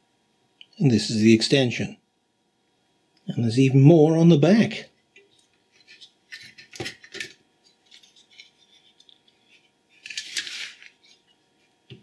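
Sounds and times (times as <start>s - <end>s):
circuit board scraping rattle: 5.3s - 11.4s.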